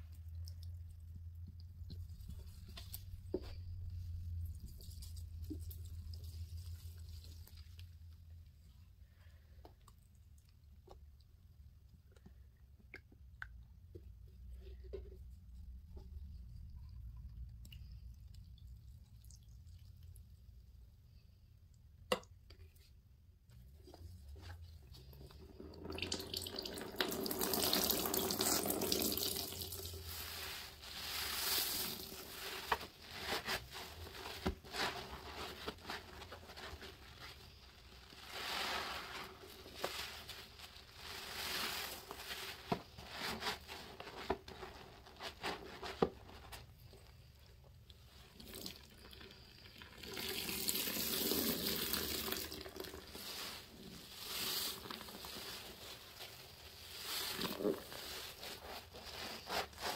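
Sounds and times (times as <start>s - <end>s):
wet sponge squelching: 24.3s - 46.1s, 50.8s - 59.9s.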